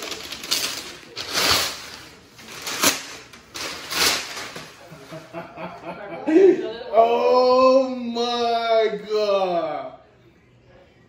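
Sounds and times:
packing paper crumpling: 0.0s - 4.8s.

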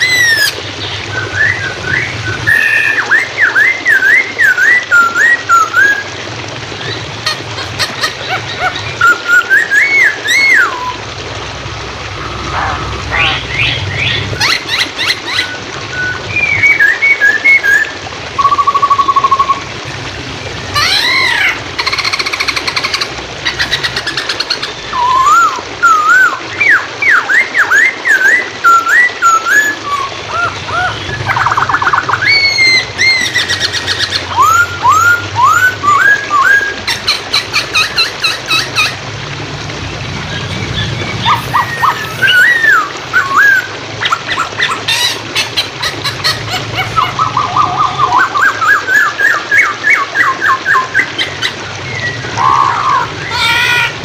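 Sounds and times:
bird singing whistles and trills: 0.0s - 6.1s, 8.3s - 11.0s, 13.2s - 19.7s, 23.6s - 38.9s, 40.4s - 45.1s, 46.9s - 53.5s
flowing water: 0.0s - 54.0s.

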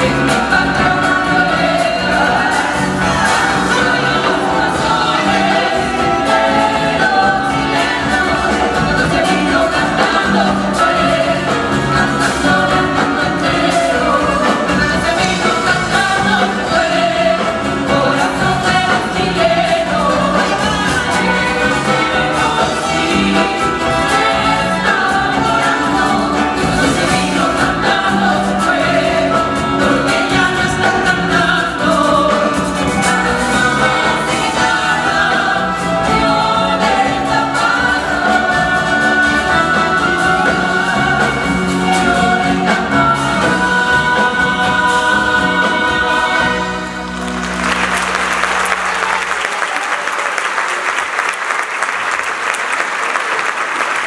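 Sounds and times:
group of voices singing: 0.0s - 47.7s
latin american folk band: 0.0s - 49.8s
audience applauding: 47.0s - 54.0s.

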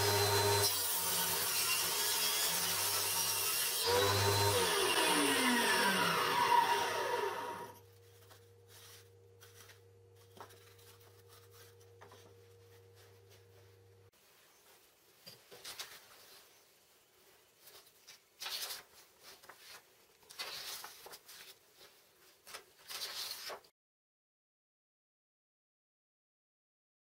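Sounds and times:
table saw blade whining: 0.0s - 7.8s.

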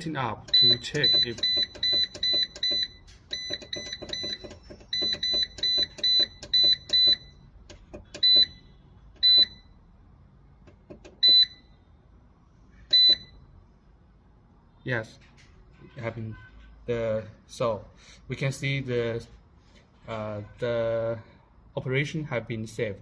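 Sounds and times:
push-button clicks: 0.4s - 8.6s.

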